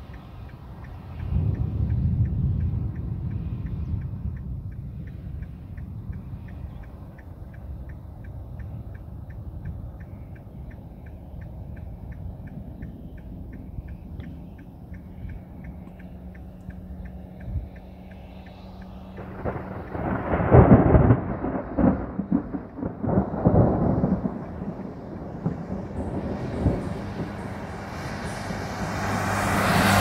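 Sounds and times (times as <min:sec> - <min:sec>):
car interior hum: 0:00.0 - 0:30.0
thunder rumbling: 0:01.0 - 0:17.8, 0:18.4 - 0:30.0
tyres hissing on wet road: 0:15.0 - 0:30.0.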